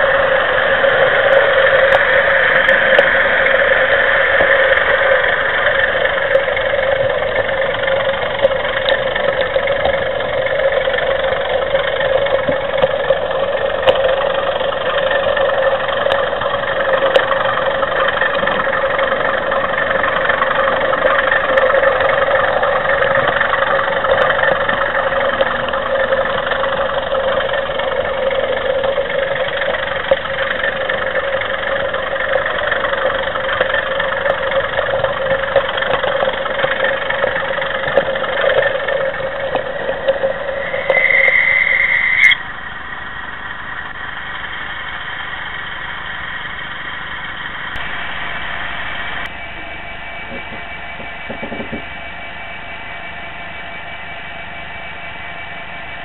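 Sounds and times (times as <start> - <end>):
wheel clicks on track: 0.0 - 42.5
model train mechanical hum: 0.0 - 56.0
simulated diesel engine sound: 0.0 - 56.0
high squeal: 38.2 - 42.6.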